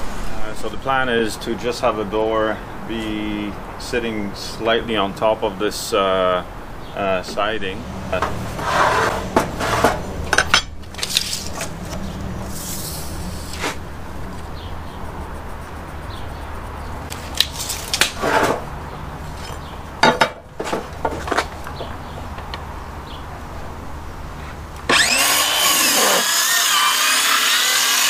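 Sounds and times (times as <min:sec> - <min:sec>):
metal tools knocking on boards: 0:20.0 - 0:22.4.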